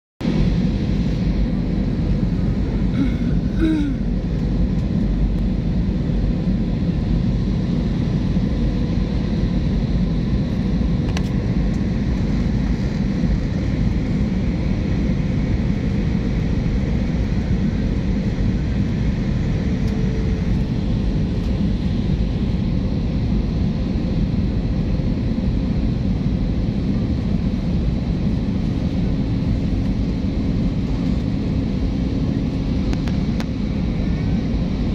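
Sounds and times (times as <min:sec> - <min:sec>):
aircraft engines and rushing air: 0:00.2 - 0:34.9
faint steady hum: 0:00.3 - 0:34.9.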